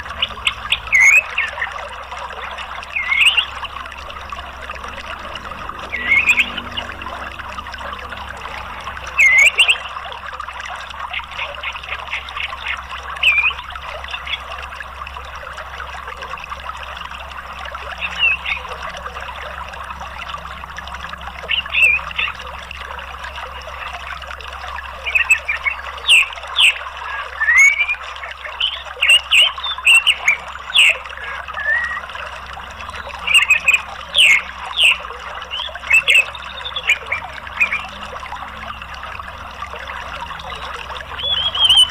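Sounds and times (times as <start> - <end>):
flowing stream water: 0.0 - 41.9
bird chirps and whistles: 25.1 - 28.0, 28.7 - 32.0, 41.2 - 41.9.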